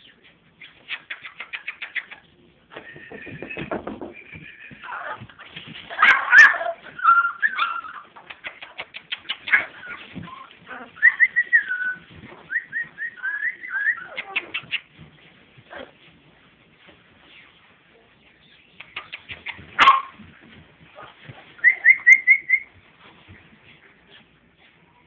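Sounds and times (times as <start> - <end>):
puppies whimpering and whining: 2.8 - 8.2, 9.4 - 15.0, 21.0 - 22.8.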